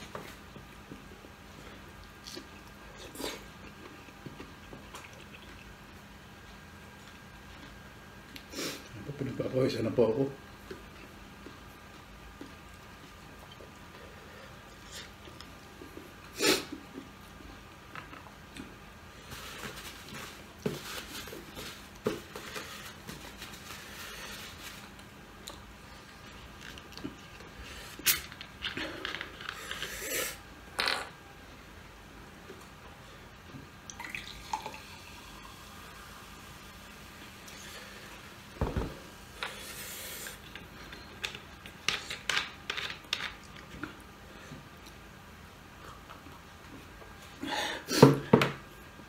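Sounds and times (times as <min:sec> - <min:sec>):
chewing and wet mouth noises: 0:01.8 - 0:06.0.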